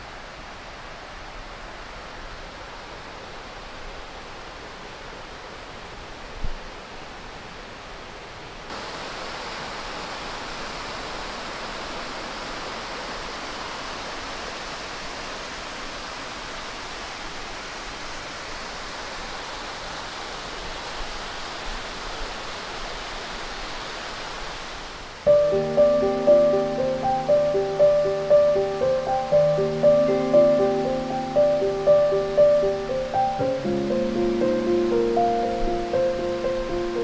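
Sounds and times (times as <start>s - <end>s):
flowing water rushing: 0.0s - 37.0s.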